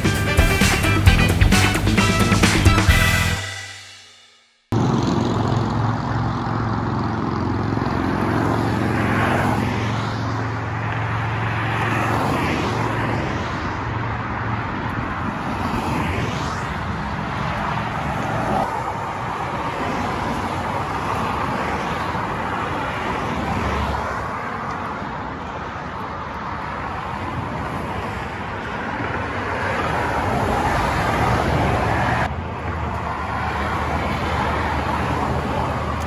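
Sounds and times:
vehicle engine and tyre noise: 4.7s - 36.0s.

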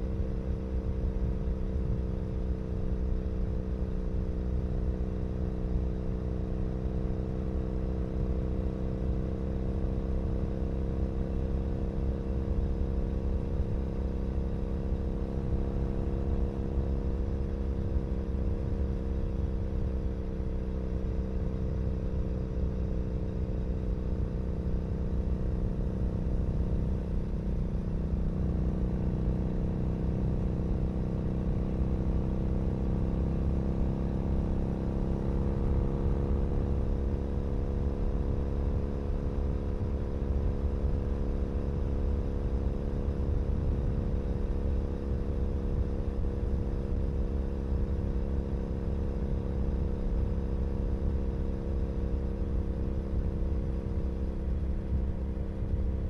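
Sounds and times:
motorcycle engine cruising: 11.3s - 56.0s.

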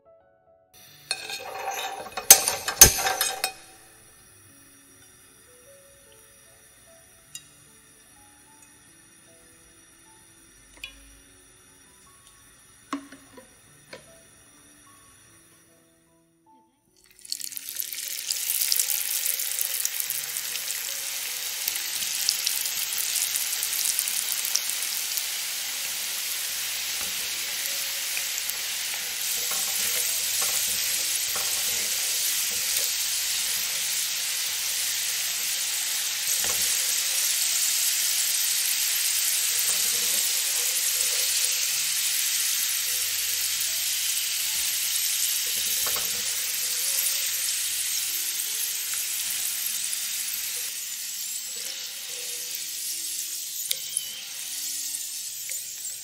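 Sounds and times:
potatoes frying in hot oil: 0.8s - 15.6s, 17.0s - 56.0s
spatula clicking: 27.0s - 35.5s.

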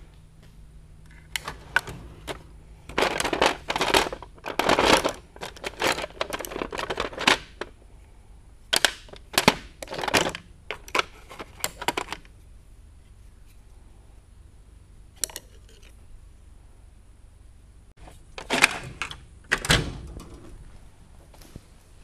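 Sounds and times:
metal drawer opening: 1.2s - 3.4s, 18.4s - 20.7s.

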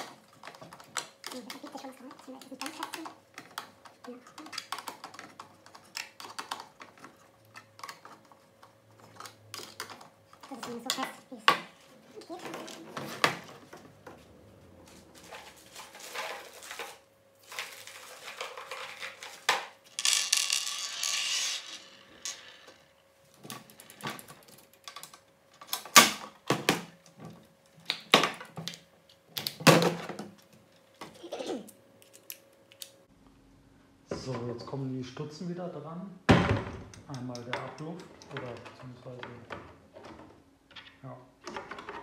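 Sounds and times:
plastic parts clicking and clattering: 0.0s - 14.2s, 15.2s - 33.0s, 36.9s - 42.0s
rustling scrape: 14.7s - 19.5s.

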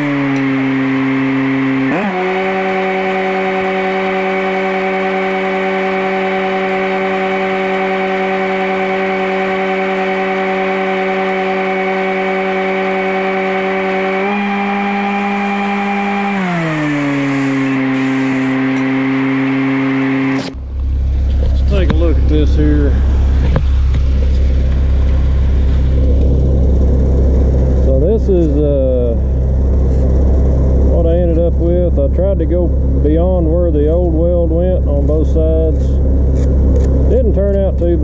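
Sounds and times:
welder engine running: 0.0s - 38.0s
welding arc crackling: 15.1s - 18.9s.

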